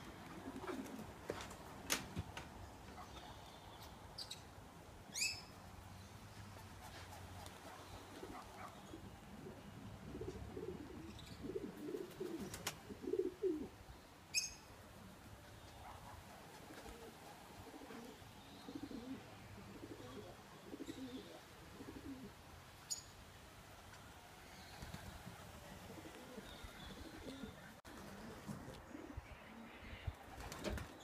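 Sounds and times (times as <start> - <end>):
pigeons cooing: 0.0 - 1.5, 7.4 - 14.4, 15.0 - 22.4, 24.5 - 31.0.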